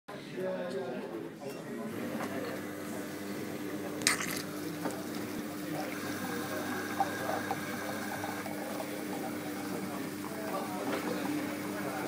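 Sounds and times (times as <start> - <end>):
coffee machine pump hum: 1.8 - 12.0
liquid filling cup: 2.0 - 12.0.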